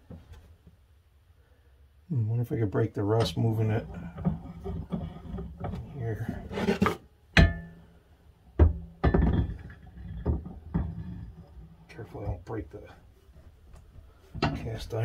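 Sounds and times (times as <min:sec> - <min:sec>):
iron knocking against metal vise: 0:07.4 - 0:07.8, 0:08.6 - 0:11.2, 0:14.4 - 0:14.7.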